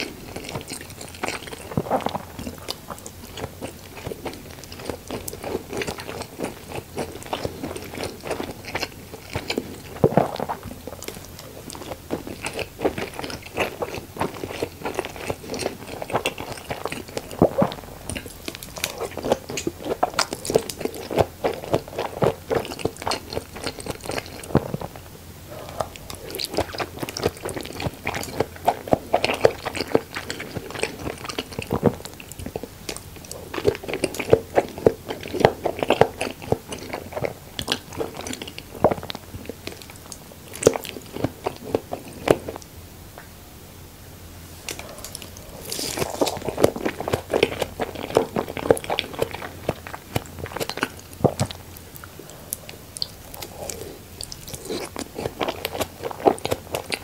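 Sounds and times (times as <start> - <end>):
chewing with mouth clicks: 0.0 - 43.3, 44.6 - 57.0.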